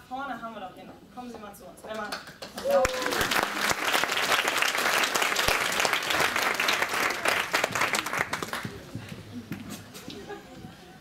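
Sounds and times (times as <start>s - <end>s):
small audience applauding: 2.1s - 8.9s.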